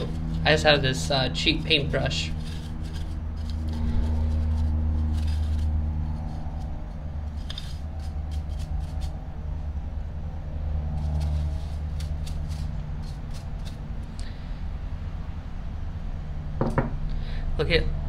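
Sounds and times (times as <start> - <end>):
paintbrush scratching: 0.0 - 9.4, 10.8 - 13.9
steady low hum: 0.0 - 18.0.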